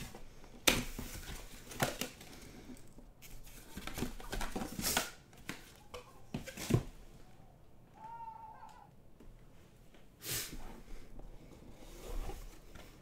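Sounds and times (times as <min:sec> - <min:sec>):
cardboard scraping and rustling: 0:11.5 - 0:13.0.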